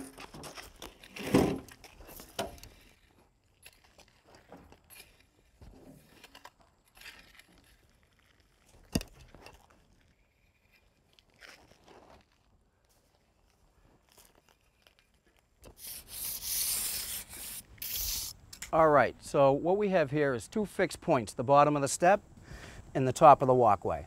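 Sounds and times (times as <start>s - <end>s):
metal rake scraping stone dust: 0.0s - 12.3s, 14.1s - 18.7s.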